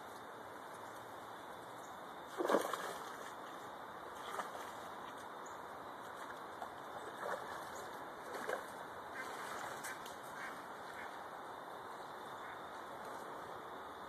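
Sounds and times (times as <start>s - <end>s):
faint duck quacks: 9.1s - 11.2s, 12.4s - 12.7s.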